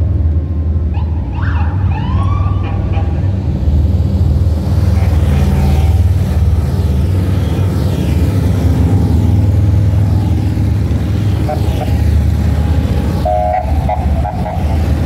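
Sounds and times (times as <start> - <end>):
motorcycle engines rumbling: 0.0 - 15.0
siren whoops: 1.0 - 2.9.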